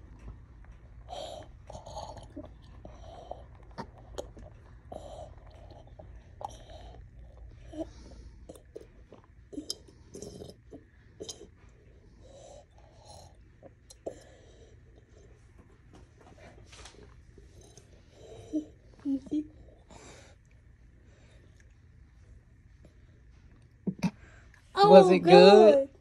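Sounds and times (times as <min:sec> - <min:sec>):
toddler gulping and swallowing: 0:01.0 - 0:11.6, 0:23.8 - 0:24.2.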